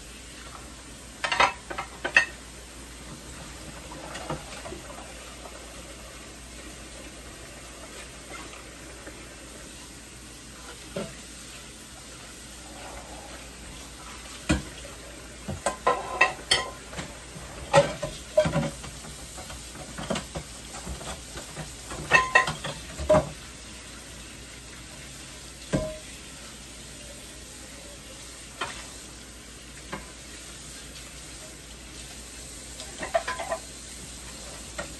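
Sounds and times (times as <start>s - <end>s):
steady hiss: 0.0s - 34.9s
dishes clinking in a sink: 1.2s - 2.4s, 14.3s - 14.8s, 15.4s - 23.4s, 25.7s - 26.1s, 32.8s - 33.7s.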